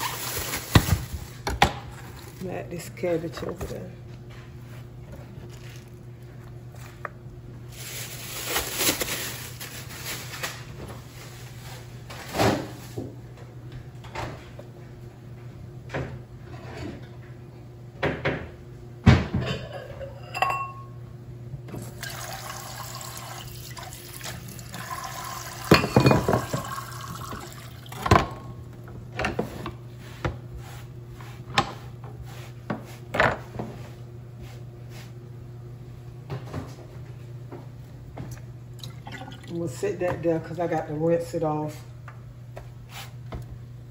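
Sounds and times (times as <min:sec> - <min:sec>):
water running in steel sink: 0:21.8 - 0:28.2, 0:38.8 - 0:39.9.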